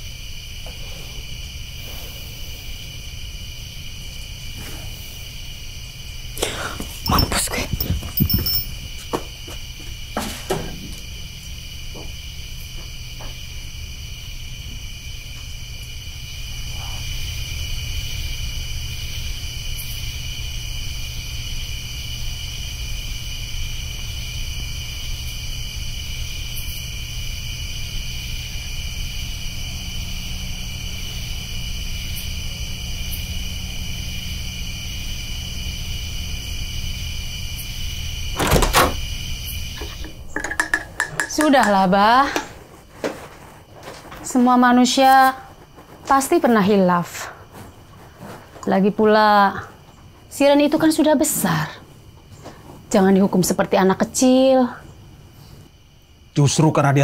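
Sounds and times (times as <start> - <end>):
night insects chirring: 0.0 - 57.0
door clattering: 38.4 - 39.1.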